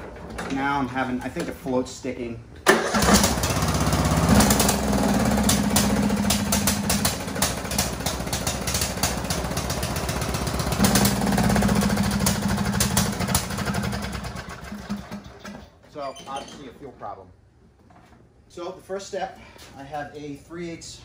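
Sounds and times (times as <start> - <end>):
mower engine running unevenly: 2.9 - 15.5.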